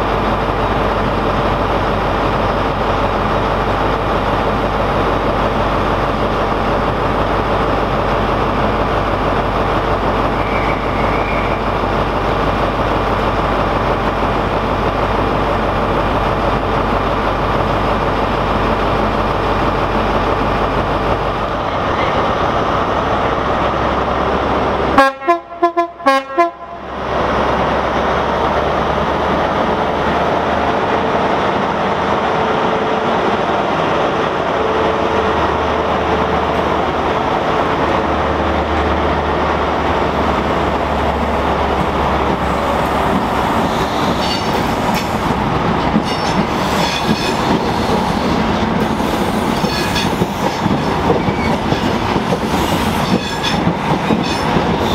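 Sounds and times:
short train horn toots: 25.0s - 26.8s.

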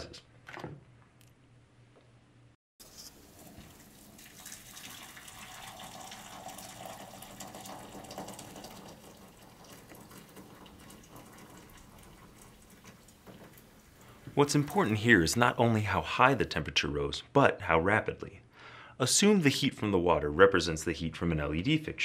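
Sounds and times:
water pouring into glass cup: 3.1s - 15.0s.

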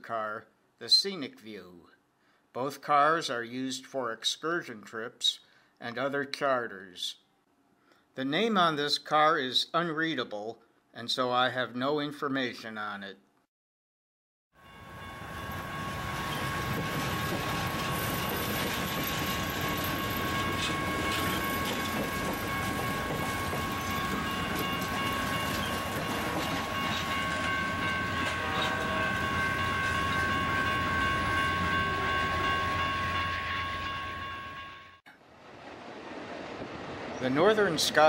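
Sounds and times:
high-pitched ring: 14.6s - 35.0s
train wheels rumbling on rails: 15.2s - 34.4s.

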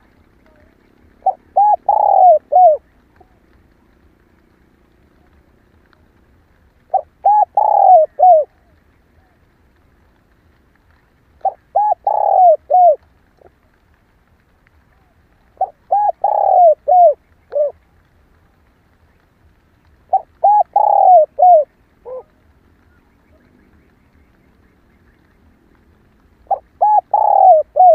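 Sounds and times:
dove cooing: 0.0s - 6.0s, 6.8s - 9.4s, 11.4s - 13.6s, 14.9s - 17.8s, 20.0s - 27.9s.

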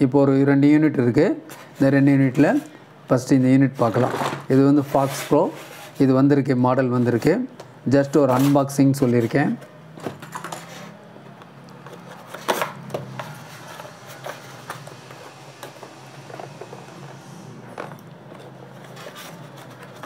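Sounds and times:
cardboard box rustling and scraping: 11.9s - 17.0s, 17.6s - 20.0s.

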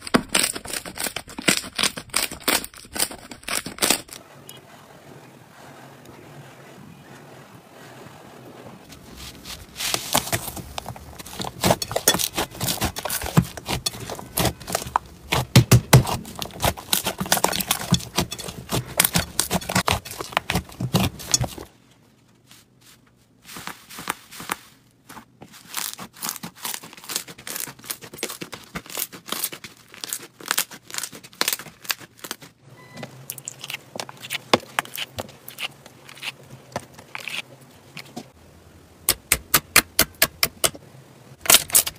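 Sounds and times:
slime with paper crinkling: 8.8s - 21.7s, 22.3s - 32.6s.

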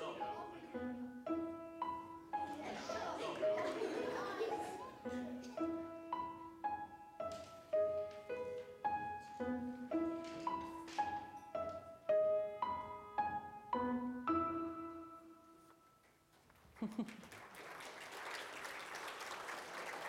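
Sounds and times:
solo piano melody: 0.0s - 16.0s.

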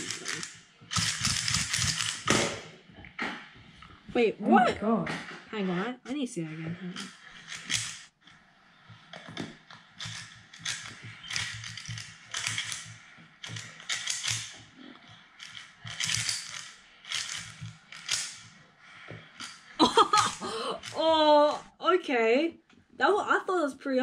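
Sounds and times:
puzzle cube layers clicking: 0.0s - 2.4s, 10.0s - 14.6s, 15.3s - 18.5s.

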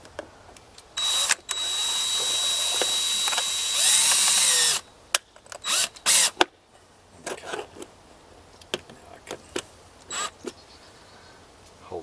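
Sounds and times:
cordless drill driving screw: 1.0s - 4.8s, 5.6s - 6.4s, 10.1s - 10.3s.

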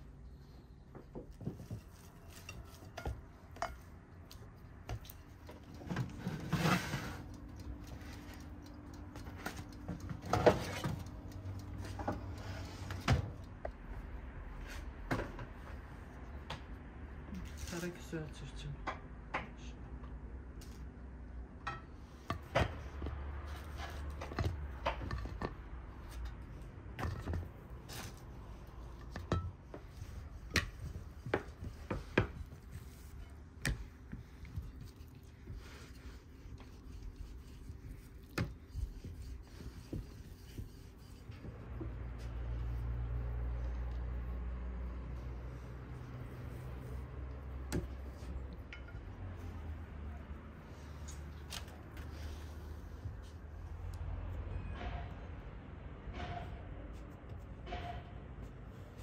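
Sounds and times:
scraping rustle: 5.8s - 7.4s.

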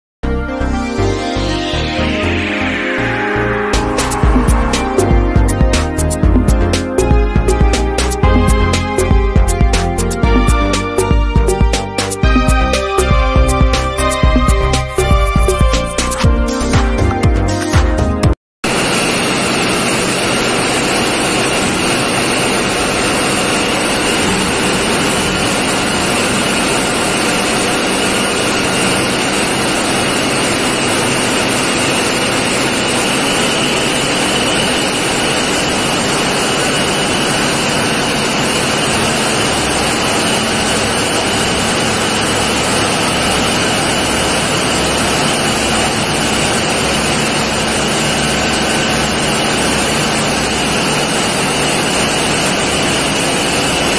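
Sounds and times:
engine room machinery din: 0.2s - 17.4s, 18.6s - 53.9s
low throb: 0.3s - 18.2s
constant high whine: 0.6s - 16.2s, 18.7s - 53.9s.

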